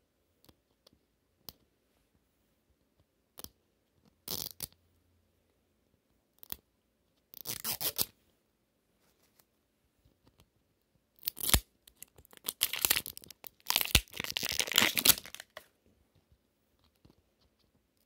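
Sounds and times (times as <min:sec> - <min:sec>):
plastic wrapper crinkling and tearing: 0:11.2 - 0:15.7.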